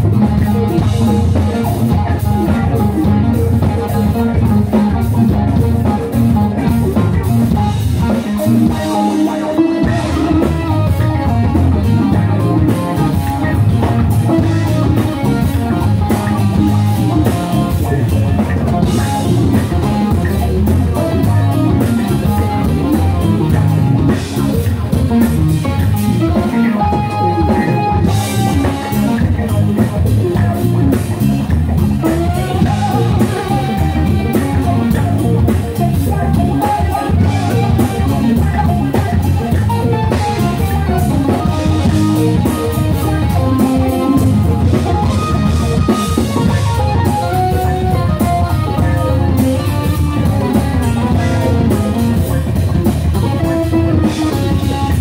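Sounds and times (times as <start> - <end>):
live rock band playing: 0.0 - 55.0.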